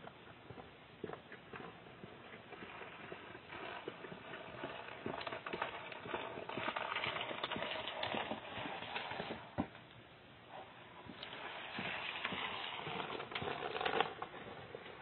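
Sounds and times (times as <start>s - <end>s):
footsteps on concrete: 0.0s - 9.8s, 11.0s - 15.0s.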